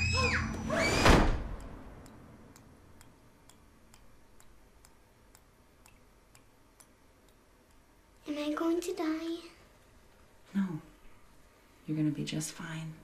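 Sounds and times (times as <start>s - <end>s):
child screaming: 0.0s - 1.1s
door slamming: 0.0s - 1.6s
faint steady ticking: 1.5s - 10.4s.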